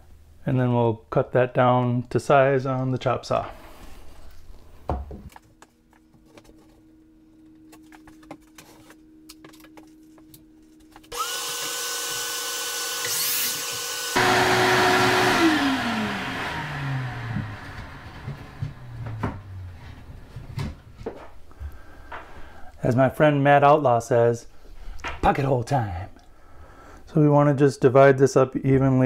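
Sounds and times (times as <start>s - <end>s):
saw cutting wood board: 11.1s - 19.4s
miter saw motor whine: 11.1s - 19.6s.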